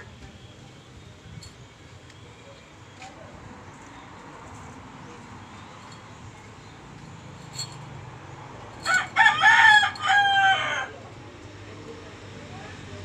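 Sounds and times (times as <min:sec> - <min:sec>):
rooster crowing: 0:08.8 - 0:11.0.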